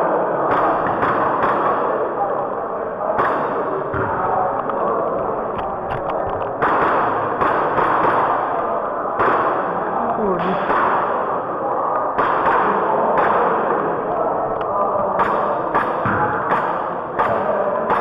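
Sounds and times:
airsoft pistol shots: 6.6s - 8.5s, 12.2s - 13.8s.

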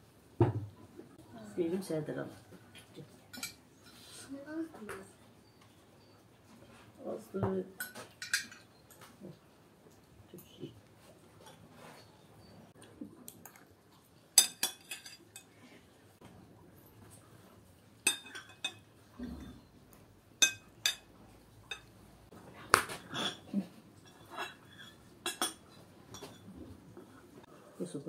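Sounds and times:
metal spoons clinking on ceramic bowls: 3.3s - 4.0s, 7.7s - 9.0s, 14.3s - 15.6s, 18.0s - 19.6s, 20.4s - 22.0s, 23.0s - 26.5s.

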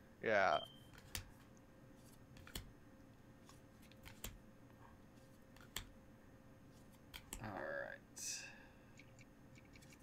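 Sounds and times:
trading cards flipped by hand: 0.9s - 2.7s, 3.4s - 4.4s.

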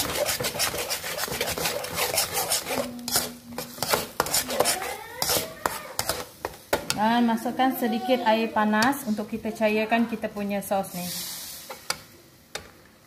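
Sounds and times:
metal spatula scraping wok: 0.0s - 6.5s.

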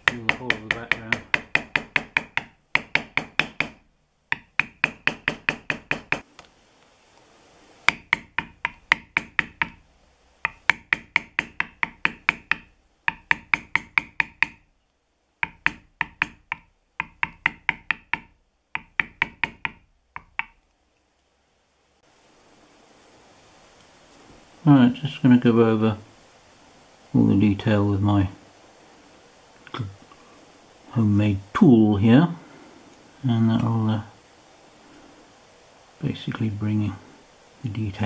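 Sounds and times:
mallet striking metal stamp on leather: 0.0s - 6.2s, 7.9s - 9.8s, 10.4s - 14.6s, 15.4s - 20.6s.

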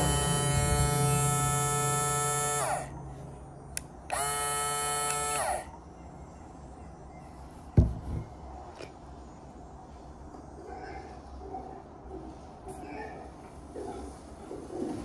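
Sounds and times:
blender motor whining: 0.0s - 3.0s, 4.1s - 5.7s
click: 3.8s - 4.2s
sharp thump: 7.8s - 8.3s.

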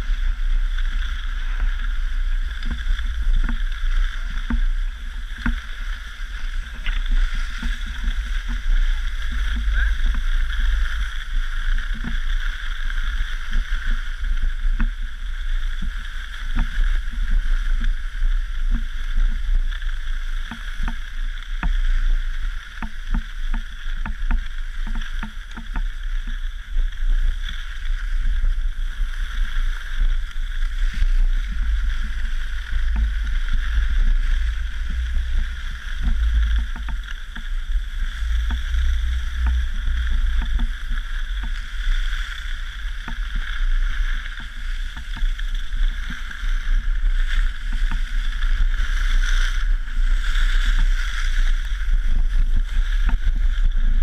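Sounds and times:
skis sliding on snow: 0.0s - 54.0s
wind rumbling on microphone: 0.0s - 54.0s
small knocks: 36.0s - 37.5s.

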